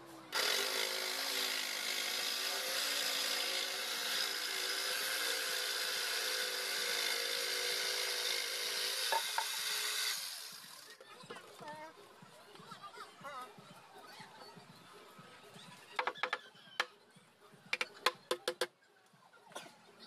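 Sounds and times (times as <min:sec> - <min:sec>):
saw blade rasping through wood: 0:00.3 - 0:10.8
electric jigsaw motor hum: 0:00.3 - 0:10.9.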